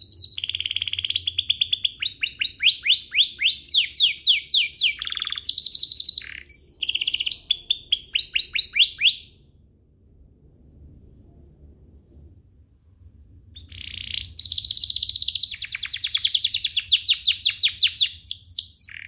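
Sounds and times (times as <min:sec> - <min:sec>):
canary singing trills: 0:00.0 - 0:09.4, 0:13.6 - 0:19.0.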